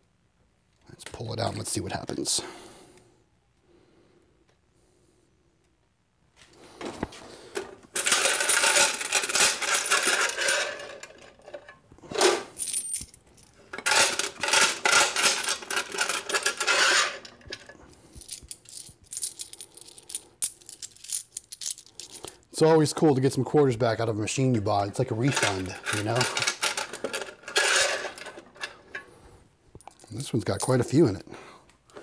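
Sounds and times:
coins clinking and jingling: 0:08.0 - 0:11.4, 0:12.3 - 0:22.4.

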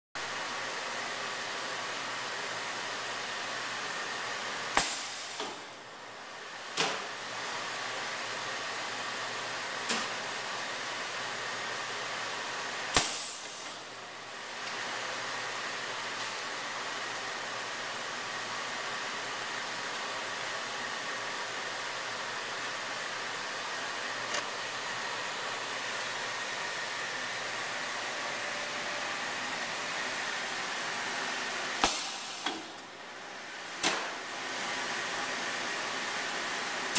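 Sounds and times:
welder rushing fan-like noise: 0:10.5 - 0:36.9.

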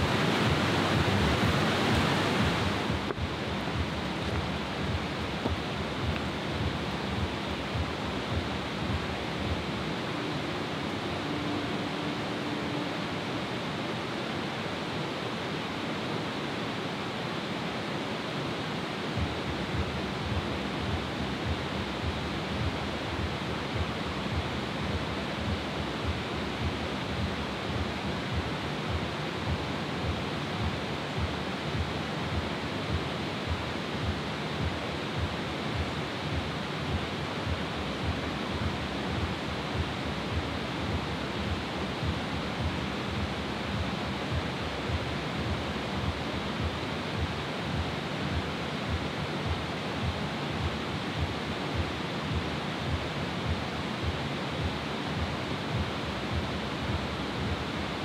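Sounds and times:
fast-flowing water rushing: 0:00.0 - 0:58.0.

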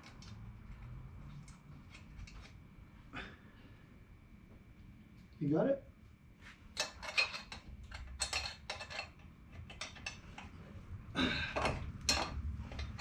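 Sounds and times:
metal clinking and scraping: 0:06.7 - 0:10.6, 0:11.6 - 0:13.0.

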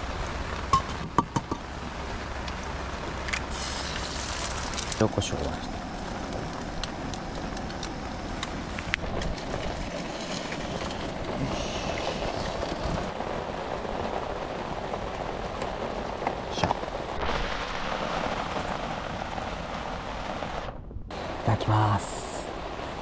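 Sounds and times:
rain pattering on a tarp: 0:00.0 - 0:23.0
bottles clicking and tapping: 0:00.7 - 0:01.6.

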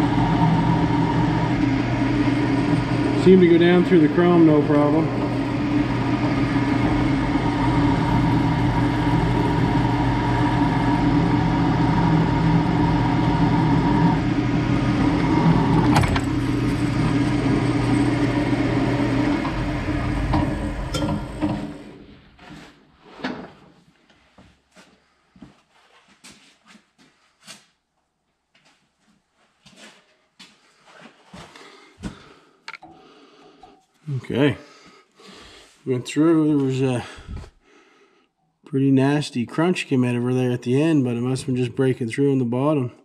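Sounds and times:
drill bit crunching through metal: 0:00.0 - 0:22.1
drill press drilling metal: 0:00.0 - 0:22.1
motor spinning down: 0:00.0 - 0:22.2.

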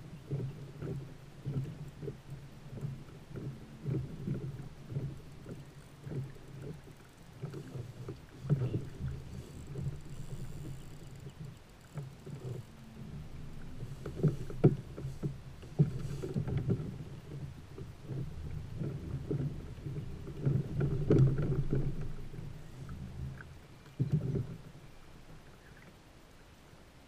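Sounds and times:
fishing reel reeling: 0:08.8 - 0:12.8.

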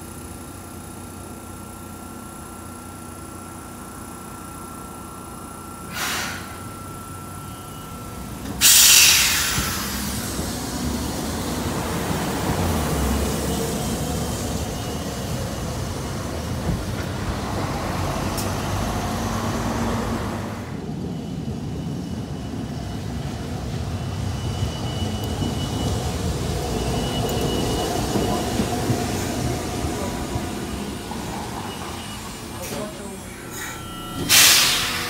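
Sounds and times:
tram running on street track: 0:00.0 - 0:35.0
road traffic noise: 0:05.1 - 0:35.0
loud hissing burst: 0:05.9 - 0:06.6, 0:08.6 - 0:10.4, 0:34.3 - 0:35.0.

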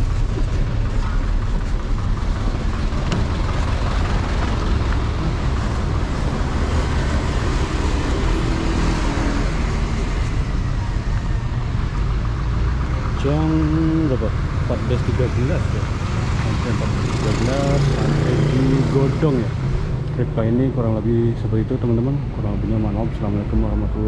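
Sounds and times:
diesel engine rumble: 0:00.0 - 0:24.0
tyre and road noise: 0:00.0 - 0:24.0.

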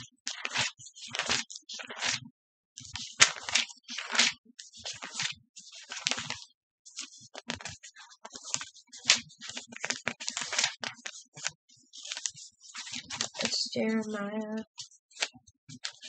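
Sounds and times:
hands rustling and clicking: 0:07.3 - 0:14.2.

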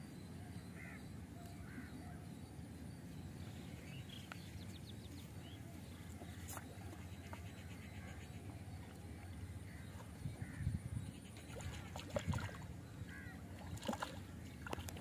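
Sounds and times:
distant bird calls: 0:00.1 - 0:15.0
faint ticks: 0:04.2 - 0:04.5.

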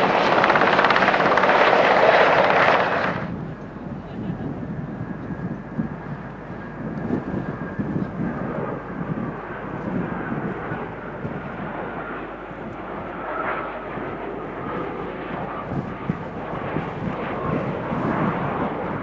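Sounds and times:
faint high engine whine: 0:00.0 - 0:19.0
jet engine rumble: 0:00.0 - 0:19.0.

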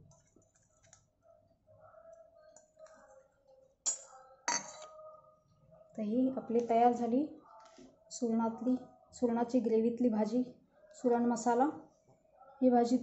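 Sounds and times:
steel bowl clinking on glass: 0:03.9 - 0:05.0.

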